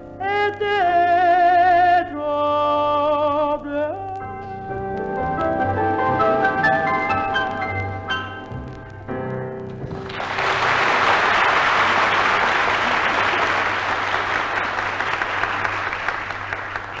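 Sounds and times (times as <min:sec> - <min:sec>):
small band playing: 0:04.0 - 0:11.5
audience applause: 0:09.9 - 0:17.0.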